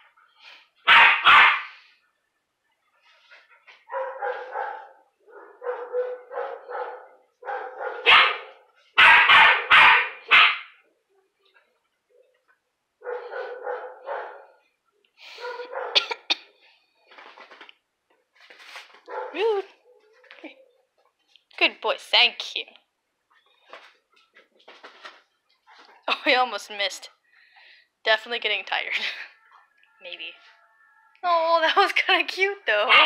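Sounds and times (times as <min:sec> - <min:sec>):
puppy barking high yaps: 0:00.8 - 0:01.8, 0:03.9 - 0:10.8, 0:13.0 - 0:14.6, 0:15.4 - 0:16.1, 0:19.1 - 0:20.0.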